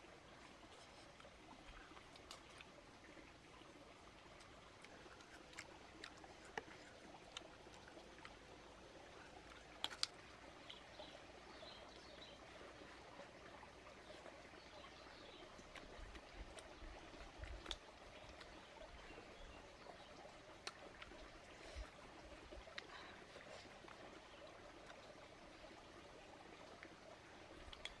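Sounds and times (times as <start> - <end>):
person chewing: 4.4 - 8.4, 9.5 - 10.8.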